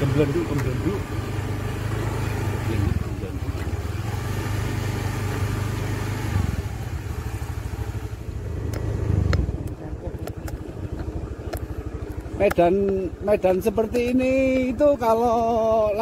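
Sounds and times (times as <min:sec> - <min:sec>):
scooter engine running: 0:00.0 - 0:16.0
low wind rumble: 0:06.4 - 0:14.8
sharp clicks: 0:08.6 - 0:13.6.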